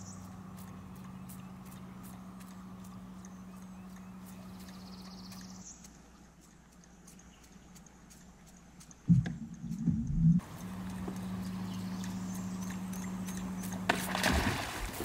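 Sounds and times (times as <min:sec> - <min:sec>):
low hum: 0:00.0 - 0:15.0
loud thump and rumble: 0:09.1 - 0:10.4.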